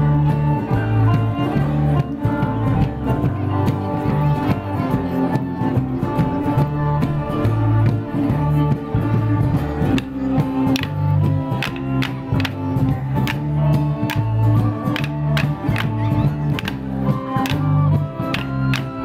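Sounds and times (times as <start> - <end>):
drums: 0.0 - 19.0
folk band playing dance tune: 0.0 - 19.0
sticks clacking together: 11.5 - 12.6, 14.9 - 15.9, 17.4 - 19.0.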